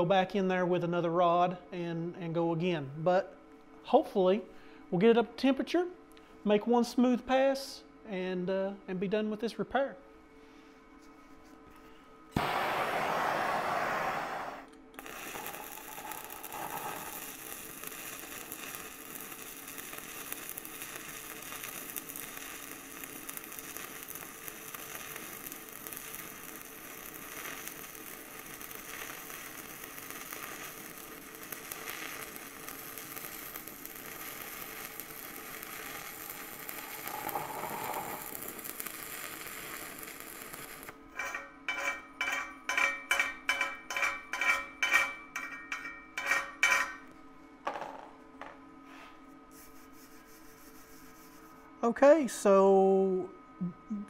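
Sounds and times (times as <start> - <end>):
welding arc crackling: 12.4 - 45.2
wire brush scrubbing metal: 41.1 - 47.0.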